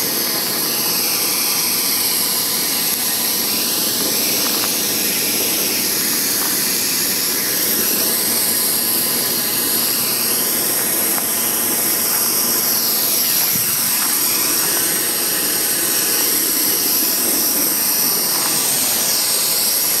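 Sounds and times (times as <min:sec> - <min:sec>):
gas torch hissing: 0:00.0 - 0:20.0.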